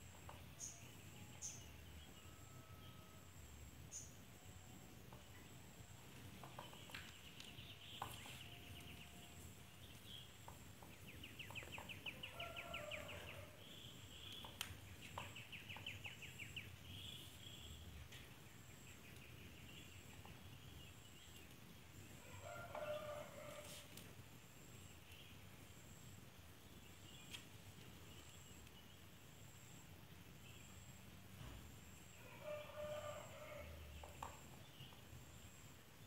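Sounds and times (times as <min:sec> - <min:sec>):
faint clicks: 0:14.2 - 0:16.0.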